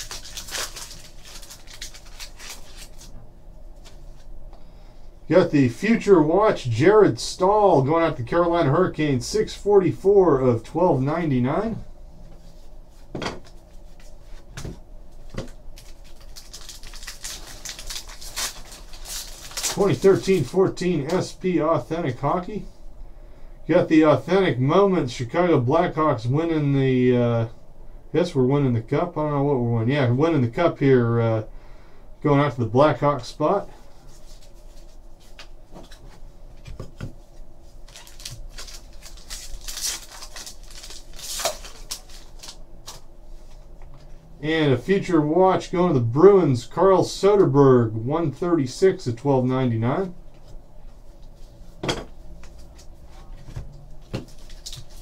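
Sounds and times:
foil wrapper crinkling: 0.0s - 3.2s, 15.4s - 21.3s, 37.8s - 43.0s, 54.0s - 55.0s.

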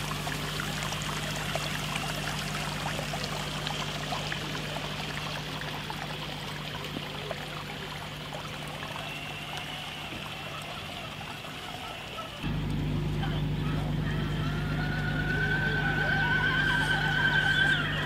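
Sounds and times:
water trickling and splashing: 0.0s - 18.0s
low hum: 12.4s - 18.0s.

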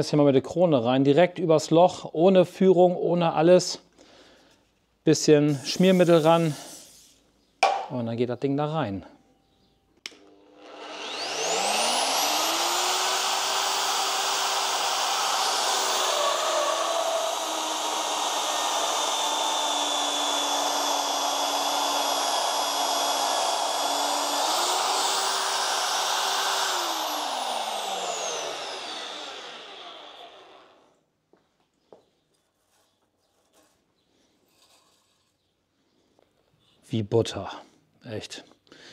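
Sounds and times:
cutter boring into steel: 5.5s - 7.0s, 10.1s - 30.9s
magnetic drill motor whining: 10.2s - 30.9s.

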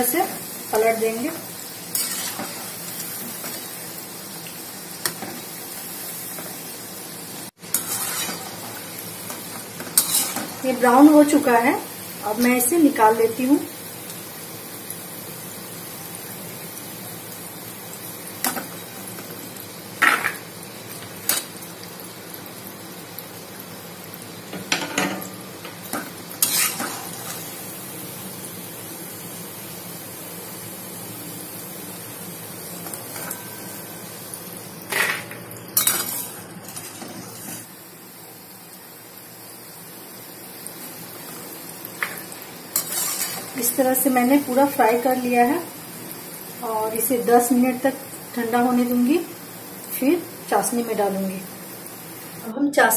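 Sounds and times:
dough sizzling in hot oil: 0.0s - 52.9s.

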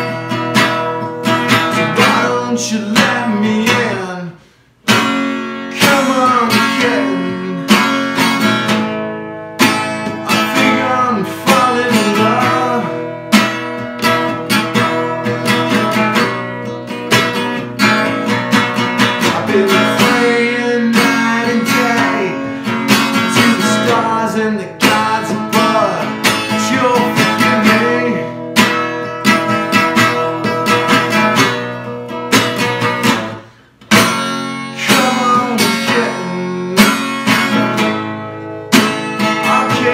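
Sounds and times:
acoustic guitar strumming: 0.0s - 39.9s
man singing: 1.5s - 4.5s, 5.6s - 8.4s, 10.0s - 13.4s, 19.0s - 28.7s, 34.6s - 37.8s, 39.2s - 39.9s.

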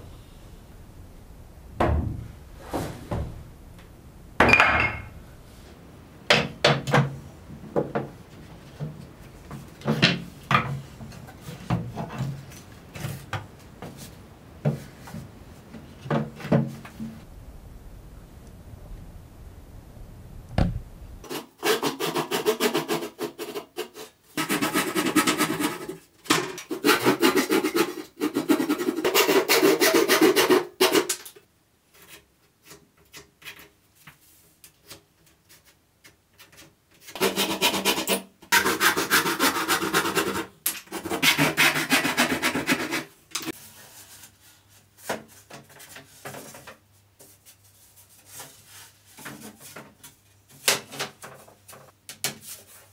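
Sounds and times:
wood sanding by hand: 37.2s - 43.1s.

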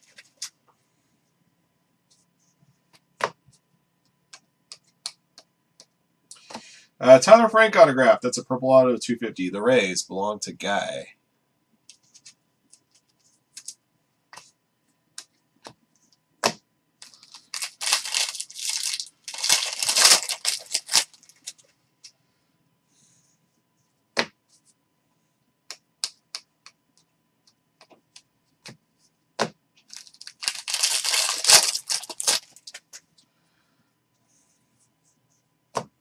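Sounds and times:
foil wrapper tearing and crinkling: 17.0s - 21.6s, 29.9s - 32.8s.

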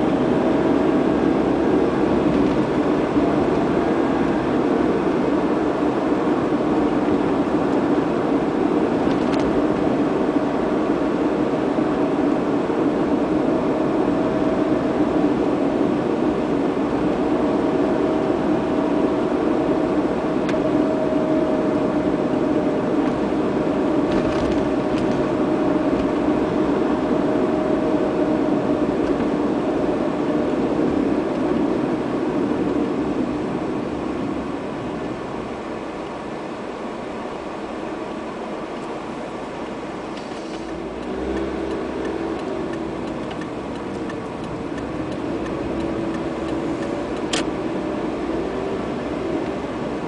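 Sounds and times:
car engine and road noise: 0.0s - 50.0s.

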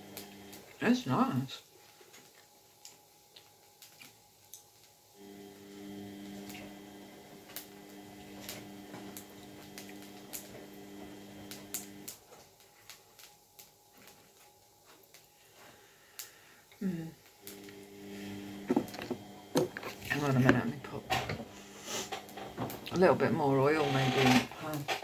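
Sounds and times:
kitchen appliance humming: 0.0s - 1.4s, 5.2s - 12.2s, 16.8s - 25.0s.

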